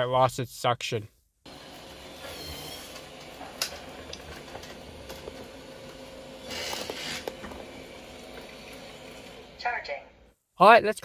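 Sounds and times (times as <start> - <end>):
robot vacuum motor hum: 1.5 - 9.6.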